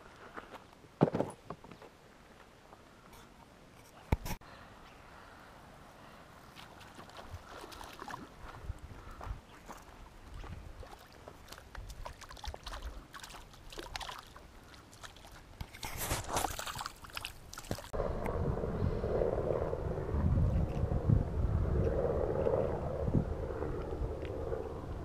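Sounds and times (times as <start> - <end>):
water splashing: 6.5 - 8.6, 9.7 - 18.0
low rushing: 17.9 - 25.0.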